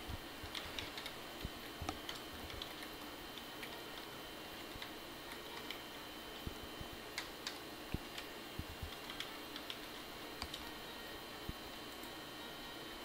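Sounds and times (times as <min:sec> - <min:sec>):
keyboard typing: 0:00.4 - 0:05.8, 0:06.5 - 0:11.1.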